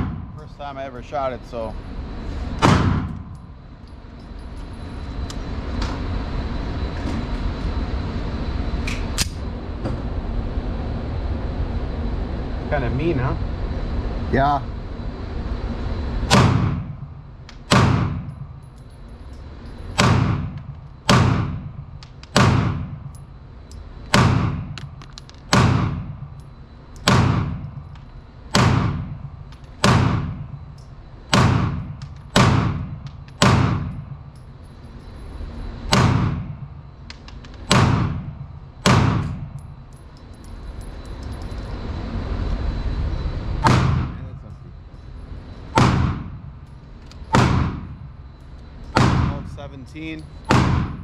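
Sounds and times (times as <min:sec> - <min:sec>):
pistol shots echoing indoors: 0:16.3 - 0:16.9, 0:17.5 - 0:18.4, 0:20.0 - 0:21.7, 0:22.3 - 0:23.0, 0:24.1 - 0:24.9, 0:25.5 - 0:26.2, 0:27.0 - 0:27.7, 0:28.5 - 0:30.4, 0:31.3 - 0:34.1, 0:35.9 - 0:36.6, 0:37.6 - 0:39.6, 0:45.7 - 0:46.4, 0:47.3 - 0:48.0, 0:48.9 - 0:49.4, 0:50.3 - 0:51.0.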